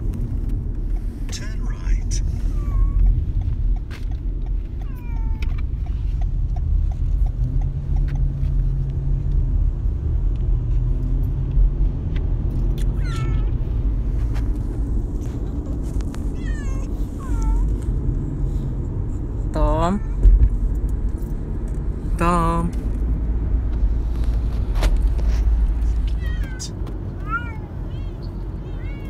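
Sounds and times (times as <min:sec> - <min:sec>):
car rumble: 0:00.0 - 0:29.0
cats meowing: 0:02.3 - 0:03.1, 0:04.8 - 0:05.6, 0:12.8 - 0:13.8, 0:15.3 - 0:17.8, 0:19.8 - 0:20.4, 0:26.0 - 0:29.0.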